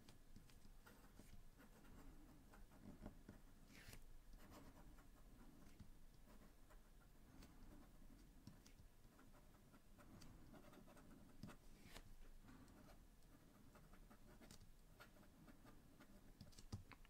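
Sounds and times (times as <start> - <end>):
pen nib scratching on paper: 0.3 - 16.7.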